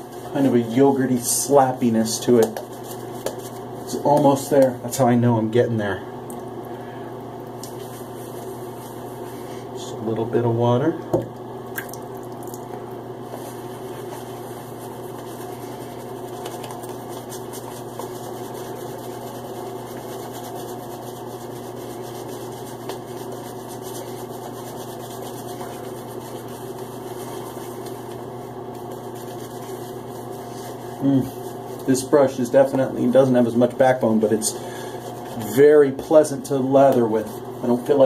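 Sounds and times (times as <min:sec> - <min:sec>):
shaving brush whipping lather: 0:13.3 - 0:38.0.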